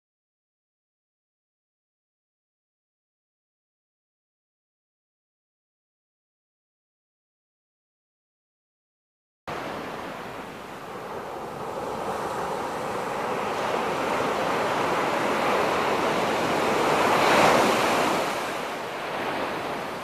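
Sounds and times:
wave breaking on beach: 0:09.5 - 0:20.0.

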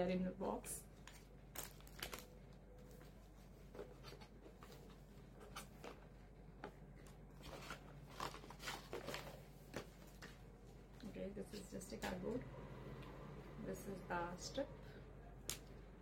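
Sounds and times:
cardboard packaging rustling: 0:01.1 - 0:06.3, 0:07.1 - 0:10.3.

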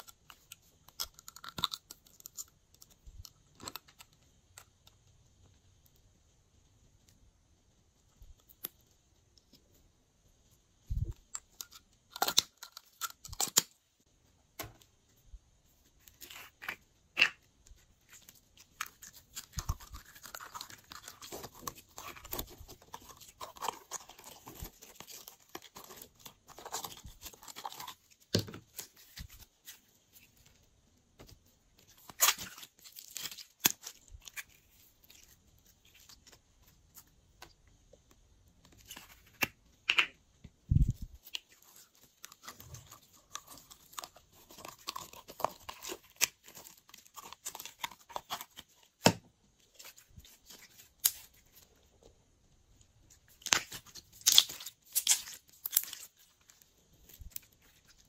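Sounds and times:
slime squishing: 0:15.8 - 0:30.5, 0:53.1 - 0:58.0
plastic caps clicking: 0:39.0 - 0:40.2.

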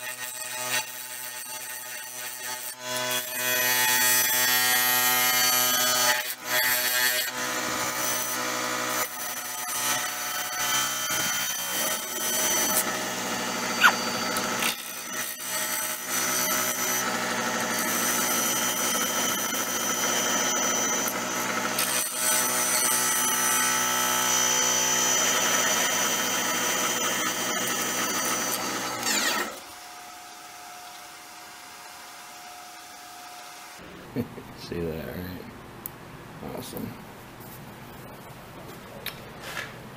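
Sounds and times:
lathe motor whine: 0:11.2 - 0:15.4
brief rising squeal: 0:13.8 - 0:14.0.

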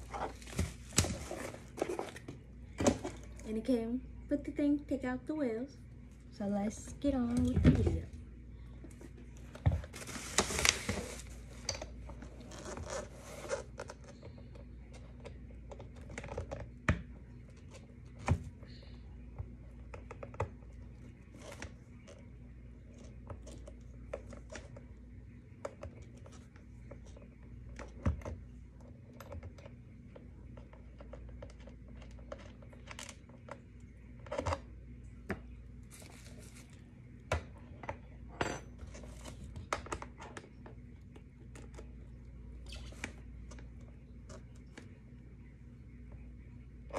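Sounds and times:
bubble wrap crinkling: 0:09.8 - 0:14.1, 0:35.8 - 0:36.9.

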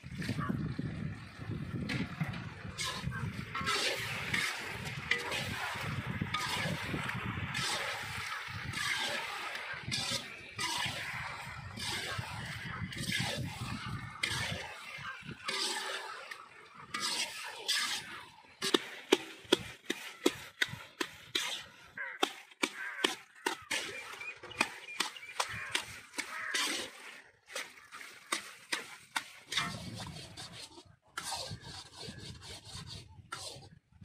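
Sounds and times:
spatula scraping in a wok: 0:02.7 - 0:16.2, 0:16.9 - 0:21.8, 0:22.7 - 0:27.0, 0:27.8 - 0:33.8.

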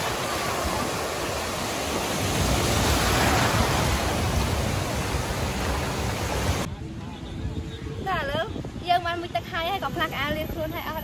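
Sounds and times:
sea surf breaking and washing: 0:00.0 - 0:06.7
wind rumble on microphone: 0:00.0 - 0:11.0.

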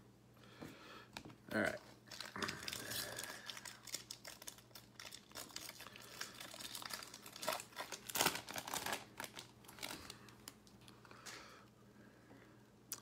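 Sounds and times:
foil wrapper crinkling and tearing: 0:01.8 - 0:10.8.

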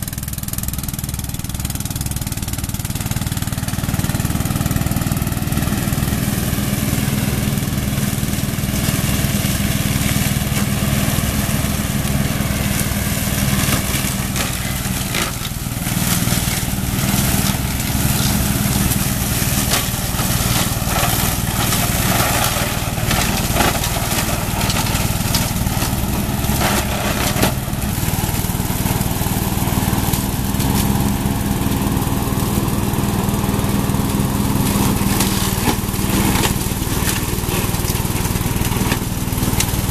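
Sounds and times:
mower engine running: 0:00.0 - 0:39.9
stems and branches snapping: 0:13.6 - 0:27.8, 0:35.0 - 0:39.9.

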